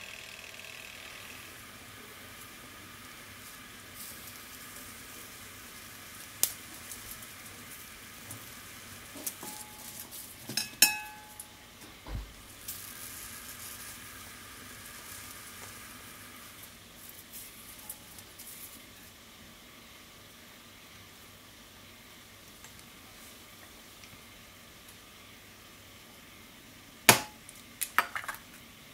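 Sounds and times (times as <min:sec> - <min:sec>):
lettuce sizzling on a grill: 0:00.0 - 0:11.7, 0:12.4 - 0:27.9
wire grill clinking against bowl: 0:09.2 - 0:11.5.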